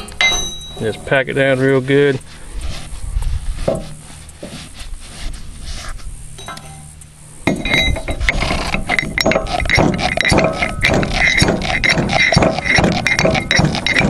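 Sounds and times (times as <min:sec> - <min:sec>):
metal ramrod clinking and scraping: 0:00.0 - 0:01.7, 0:06.4 - 0:14.0.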